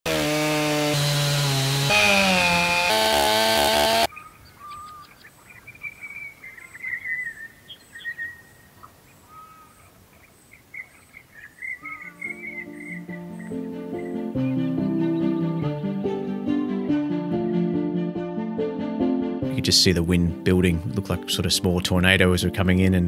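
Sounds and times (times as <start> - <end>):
chainsaw cutting log: 0.0 - 4.1
birds chirping and whistling: 4.1 - 15.4.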